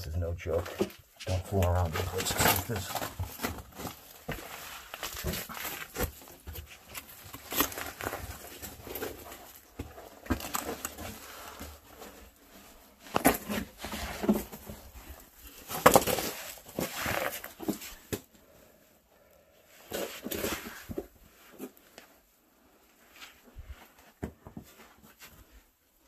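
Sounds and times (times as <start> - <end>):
clothing and boots scraping rock: 0.4 - 18.1.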